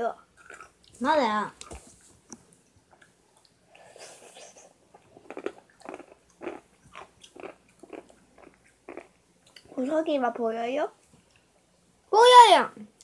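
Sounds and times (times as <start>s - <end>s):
person chewing with mouth smacks: 2.6s - 9.7s.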